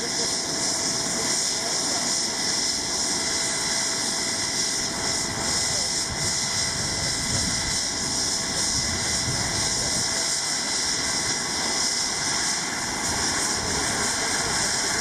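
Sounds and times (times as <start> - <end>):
helicopter turbine whine: 0.0 - 15.0.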